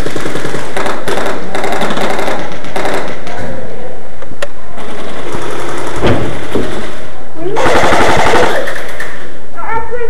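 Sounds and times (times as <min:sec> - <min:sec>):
airsoft rifles firing bursts: 0:00.0 - 0:03.4, 0:04.8 - 0:07.0, 0:07.6 - 0:09.3.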